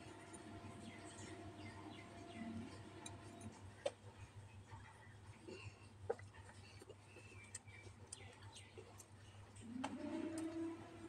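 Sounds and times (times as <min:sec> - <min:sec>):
faint low background: 0:00.0 - 0:11.0.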